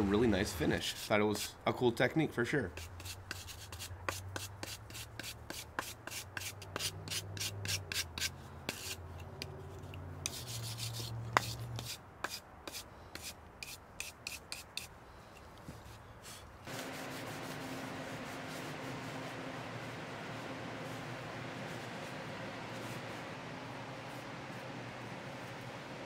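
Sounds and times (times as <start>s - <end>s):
stiff brush scrubbing wood: 2.7s - 9.0s, 15.9s - 26.0s.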